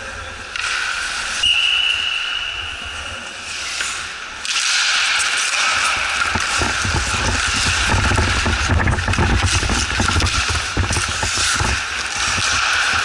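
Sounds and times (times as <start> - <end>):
arena noise: 0.0 - 13.0
skates hissing on ice: 0.7 - 7.8.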